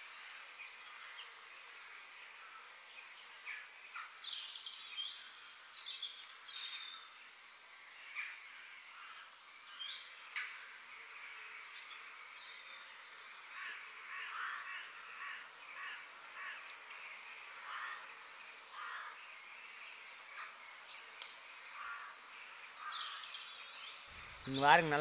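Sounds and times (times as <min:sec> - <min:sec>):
birds calling: 0:08.0 - 0:25.0.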